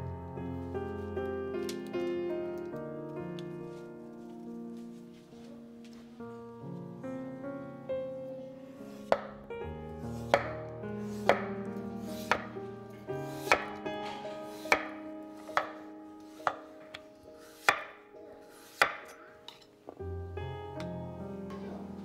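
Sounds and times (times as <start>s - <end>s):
soft background music: 0.0s - 22.0s
knife chopping on cutting board: 9.1s - 9.4s, 10.3s - 10.6s, 11.2s - 11.5s, 12.1s - 12.6s, 13.3s - 13.8s, 14.5s - 15.8s, 16.4s - 16.7s, 17.6s - 18.0s, 18.6s - 19.1s.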